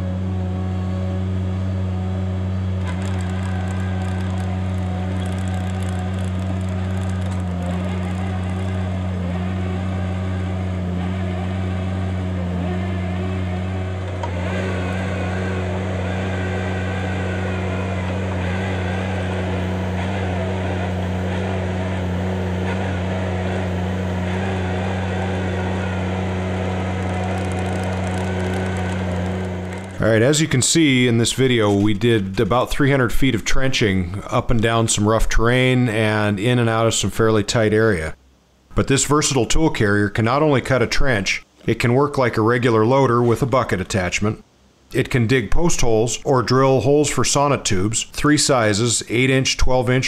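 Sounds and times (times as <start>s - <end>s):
chain trencher cutting soil: 0.0s - 32.0s
loader engine running under load: 0.0s - 32.0s.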